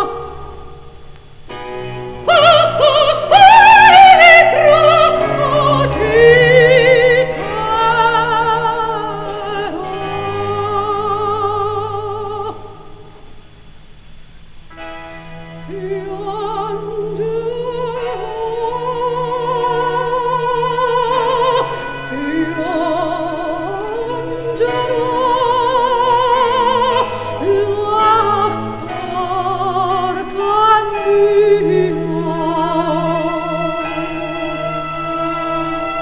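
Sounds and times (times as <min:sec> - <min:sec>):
soprano singing opera: 0:00.0 - 0:00.8, 0:02.1 - 0:13.0, 0:15.5 - 0:36.0
orchestral accompaniment: 0:01.5 - 0:12.4.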